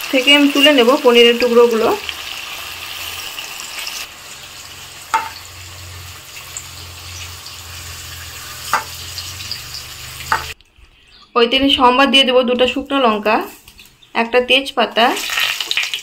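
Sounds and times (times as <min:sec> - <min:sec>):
food sizzling in hot oil: 0:00.0 - 0:10.6, 0:14.9 - 0:16.0.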